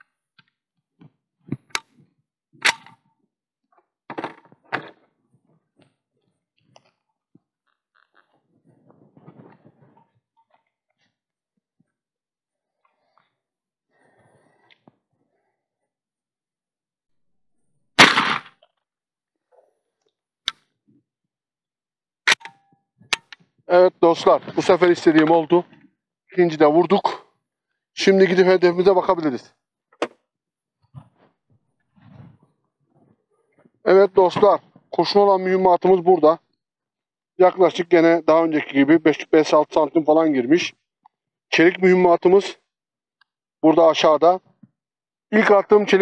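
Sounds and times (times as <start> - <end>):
shotgun blast: 18.0 - 18.5.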